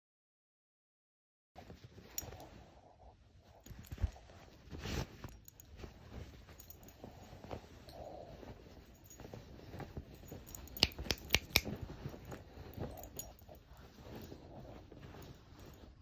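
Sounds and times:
fabric rustling: 1.6s - 16.0s
dog digging at bedcovers: 3.6s - 16.0s
sharp clicks: 10.7s - 11.8s.

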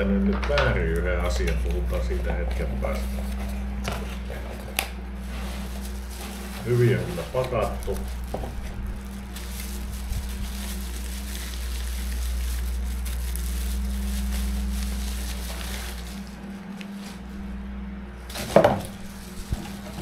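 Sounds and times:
steady low hum: 0.0s - 20.0s
plastic packaging crinkling: 0.7s - 17.5s, 18.3s - 20.0s.

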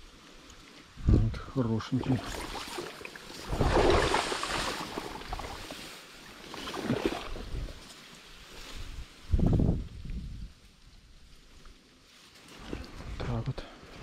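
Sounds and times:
water sloshing: 1.9s - 8.0s.

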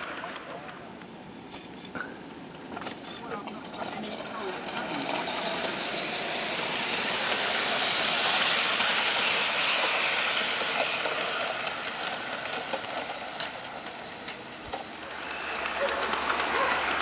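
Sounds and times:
wheels clicking on track: 0.0s - 17.0s
steam hissing: 4.2s - 17.0s.

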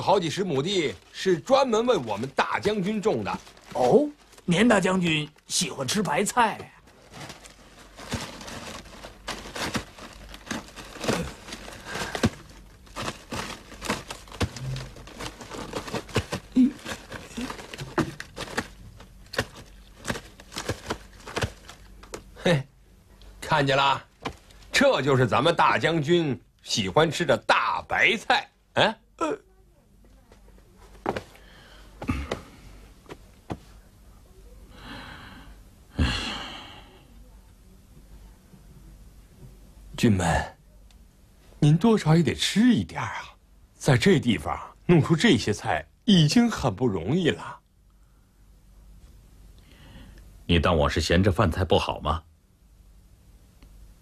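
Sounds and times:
cabbage leaves snapping and crinkling: 6.9s - 22.3s
man breathing in: 31.3s - 32.8s, 34.7s - 37.0s, 49.6s - 50.2s
man sighing heavily: 31.5s - 32.8s, 34.8s - 37.0s.

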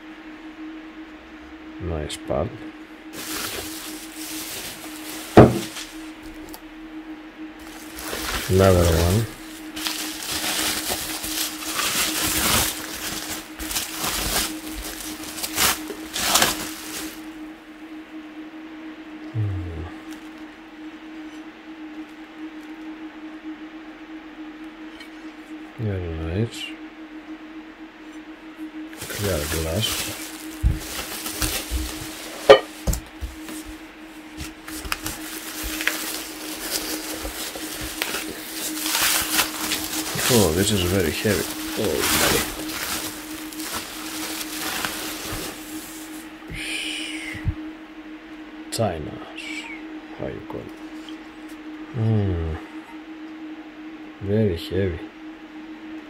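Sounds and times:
low hum: 0.0s - 56.0s
packing wrap rustling and crinkling: 3.1s - 6.6s, 7.6s - 17.3s, 29.0s - 46.4s.

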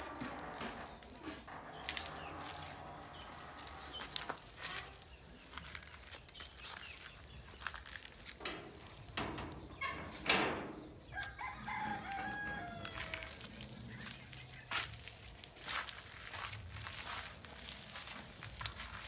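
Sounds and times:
rooster crowing: 11.1s - 13.6s.

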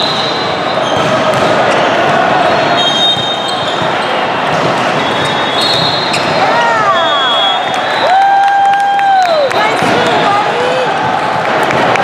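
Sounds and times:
reverberant sports hall din: 0.0s - 12.0s
volleyball hits: 0.8s - 8.0s
shoe squeaks: 2.4s - 6.4s.

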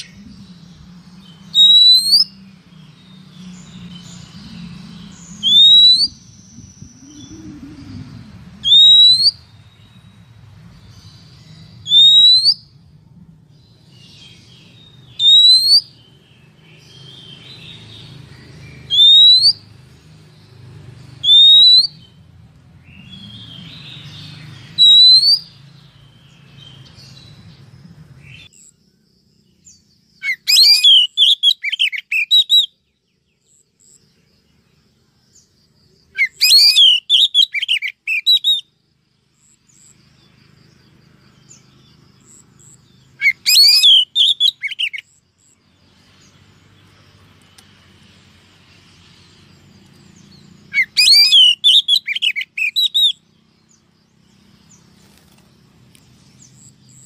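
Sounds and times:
steady low hum: 0.0s - 1.6s, 2.2s - 11.9s, 12.6s - 15.2s
soft bird chirps: 0.0s - 57.0s
bird rising whistled call: 1.5s - 2.4s, 5.2s - 9.4s, 11.8s - 12.7s, 15.1s - 15.9s, 18.9s - 19.6s, 21.2s - 22.1s, 24.8s - 25.6s, 30.2s - 32.8s, 36.2s - 38.7s, 43.2s - 45.0s, 50.7s - 53.2s.

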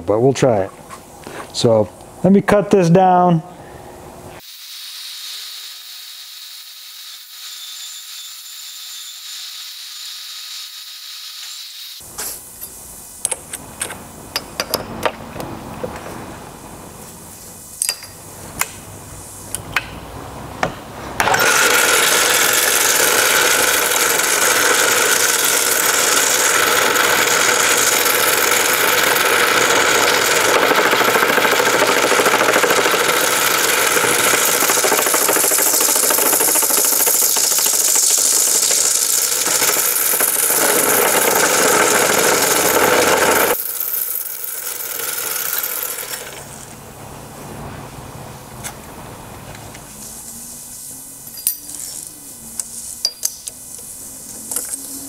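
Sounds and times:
bandsaw cutting steel tube: 5.2s - 12.0s, 21.2s - 46.5s
metal lathe running: 21.2s - 46.5s.

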